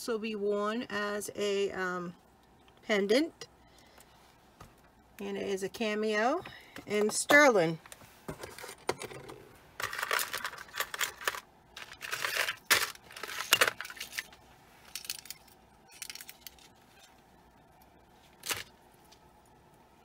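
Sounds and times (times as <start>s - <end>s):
rustling and handling noise: 6.2s - 20.0s.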